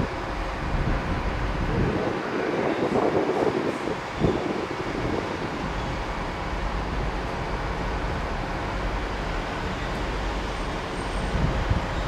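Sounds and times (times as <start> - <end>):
diesel train engine rumbling: 0.0 - 12.0.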